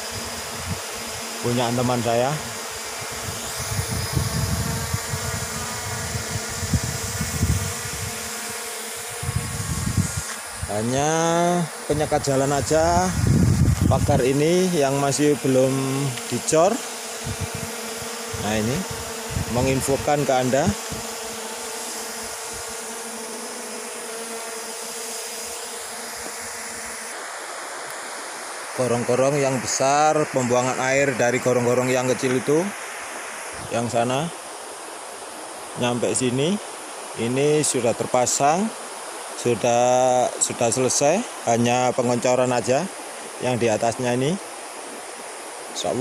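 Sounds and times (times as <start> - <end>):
drone propellers buzzing: 0.0 - 34.2
constant hiss: 0.0 - 46.0
low microphone rumbling: 12.1 - 14.4.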